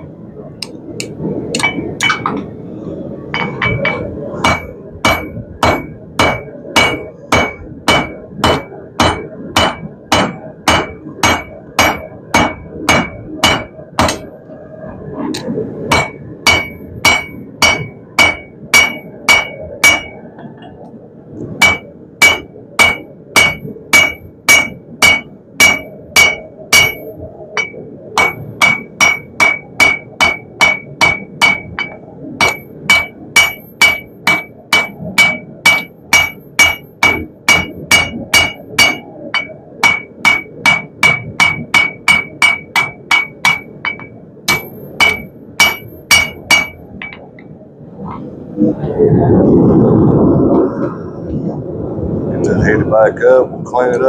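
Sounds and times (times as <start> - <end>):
hammer striking steel on anvil: 1.0 - 2.4, 3.4 - 14.3, 15.9 - 20.2, 21.6 - 47.3.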